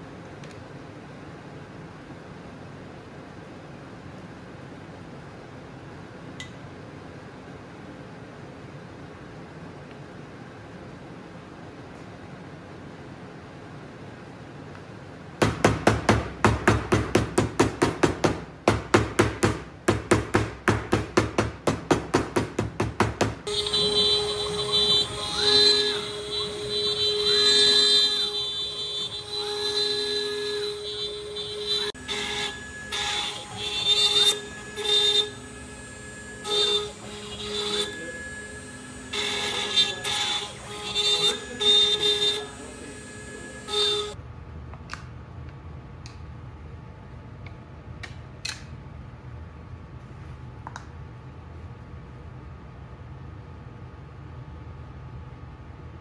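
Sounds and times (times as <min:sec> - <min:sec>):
machine axes whining: 0:23.0 - 0:44.2
router bit cutting wood: 0:23.5 - 0:44.1.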